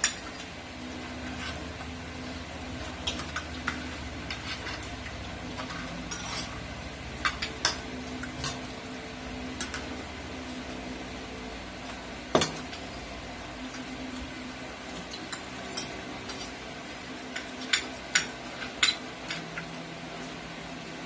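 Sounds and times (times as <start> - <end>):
spoons clinking on plates: 17.3 - 19.7.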